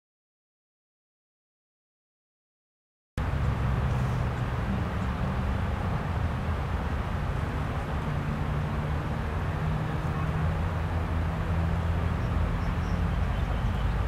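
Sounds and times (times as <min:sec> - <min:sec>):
distant traffic rumble: 0:03.2 - 0:14.0.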